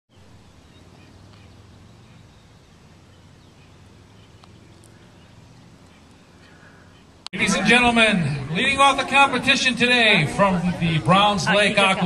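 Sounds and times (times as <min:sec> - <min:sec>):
faint bird chirps: 0:00.1 - 0:07.2.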